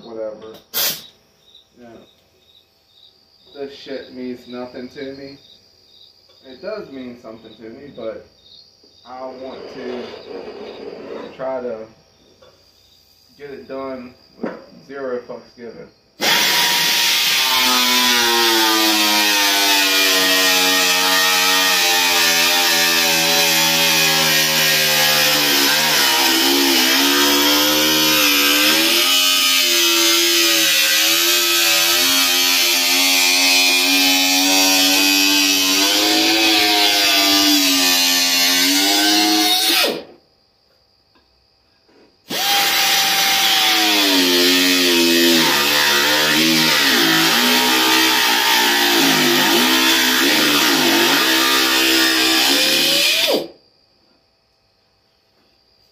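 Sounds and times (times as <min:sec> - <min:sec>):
pneumatic cut-off wheel cutting metal: 0:00.6 - 0:01.1, 0:42.3 - 0:53.5.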